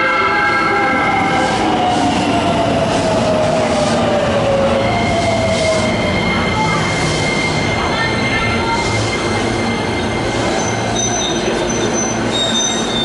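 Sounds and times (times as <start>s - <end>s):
train wheels rumbling on rail: 0.0s - 13.0s
brake squeal: 5.6s - 13.0s.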